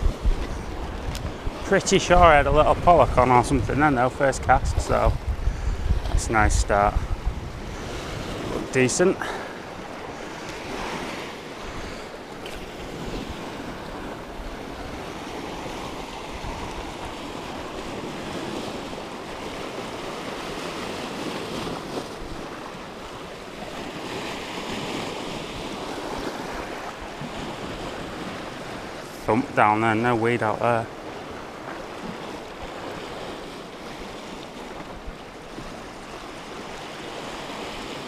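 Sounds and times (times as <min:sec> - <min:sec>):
wind on microphone: 0:00.0 - 0:29.1
waves breaking over rocks: 0:00.0 - 0:38.0.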